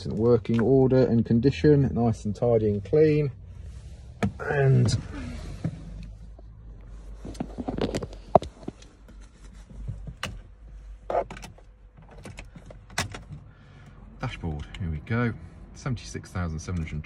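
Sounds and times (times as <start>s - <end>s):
clicks and knocks in van cab: 9.8s - 13.5s.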